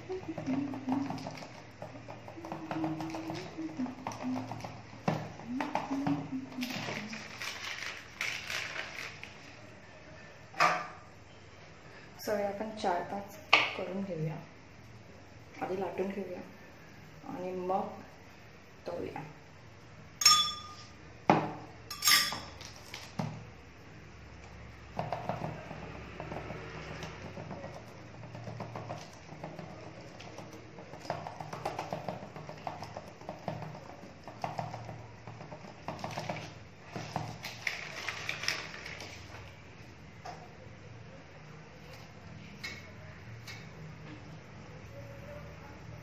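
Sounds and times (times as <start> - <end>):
hands patting dough on plastic: 0.0 - 9.4, 24.9 - 39.5
metal spoon clinking on steel bowl: 20.2 - 21.0, 21.9 - 22.6.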